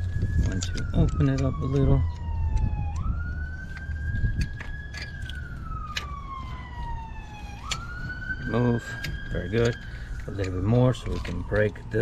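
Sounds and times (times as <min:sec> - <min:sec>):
siren wailing: 0:00.0 - 0:12.0
pliers clicking on hose clamp: 0:00.4 - 0:03.1, 0:03.7 - 0:06.1, 0:07.6 - 0:07.9, 0:09.0 - 0:11.7.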